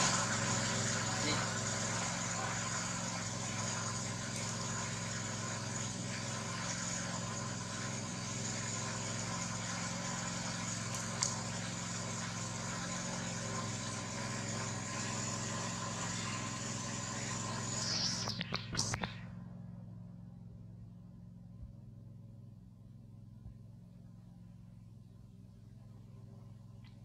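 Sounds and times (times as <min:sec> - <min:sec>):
steady mechanical hum: 0:00.0 - 0:27.0
short click: 0:18.1 - 0:19.2.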